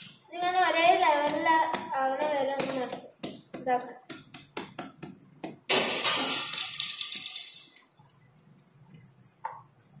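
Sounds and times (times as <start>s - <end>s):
hands patting dough: 0.0s - 5.7s.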